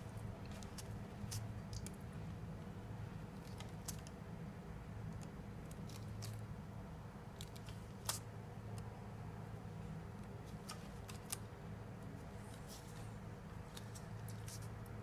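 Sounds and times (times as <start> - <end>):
low steady hum: 0.0 - 15.0
grip tape sticky clicks and crackles: 0.4 - 2.0, 3.4 - 4.2, 5.0 - 6.4, 7.3 - 8.9, 10.6 - 11.5.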